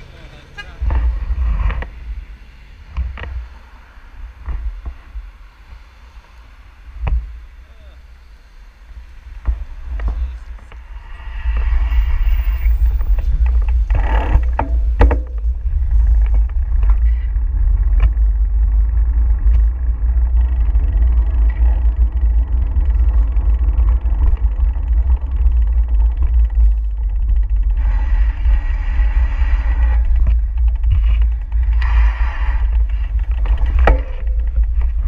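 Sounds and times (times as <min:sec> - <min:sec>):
car traffic passing: 0:00.0 - 0:24.1
wind rumbling on microphone: 0:00.0 - 0:35.0
knocks: 0:14.2 - 0:15.5, 0:33.6 - 0:34.6.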